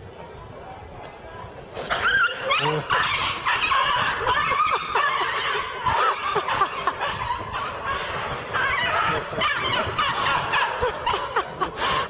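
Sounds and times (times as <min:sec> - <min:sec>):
people laughing: 0:02.3 - 0:12.0.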